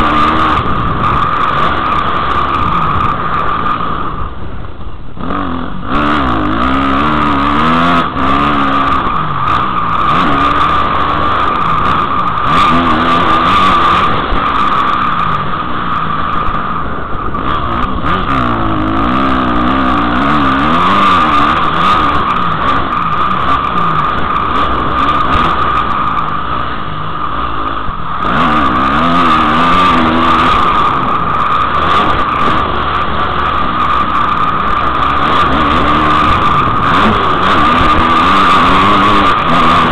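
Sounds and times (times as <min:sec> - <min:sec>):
dirt bike engine revving: 0:00.0 - 0:39.9.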